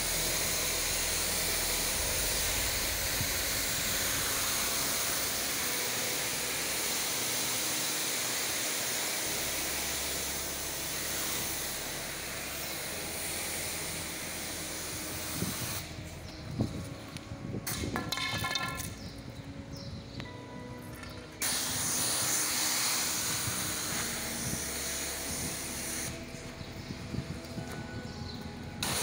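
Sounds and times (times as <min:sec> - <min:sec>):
pressure washer jet hissing: 0:00.0 - 0:16.0, 0:21.4 - 0:26.3, 0:28.8 - 0:29.0
knocks and rattles: 0:17.7 - 0:19.0.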